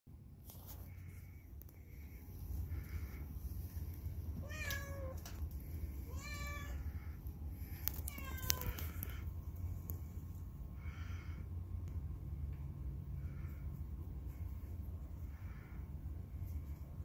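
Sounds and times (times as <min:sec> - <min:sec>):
cat meowing: 0:04.4 - 0:05.3, 0:06.1 - 0:07.0, 0:07.9 - 0:09.2.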